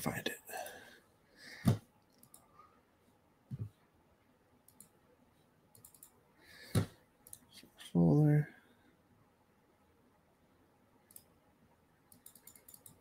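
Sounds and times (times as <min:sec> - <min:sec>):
computer mouse clicks: 0:01.6 - 0:02.5, 0:04.6 - 0:05.0, 0:05.7 - 0:07.5, 0:11.0 - 0:11.4, 0:12.1 - 0:13.0.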